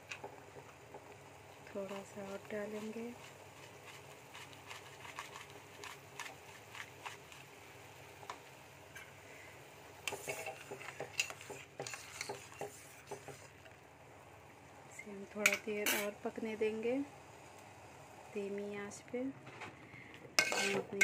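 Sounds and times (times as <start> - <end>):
syrup simmering with pops: 0.0 - 9.0, 10.0 - 13.8
metal spoon scraping a pan: 10.1 - 13.5, 15.4 - 16.2, 20.4 - 21.0.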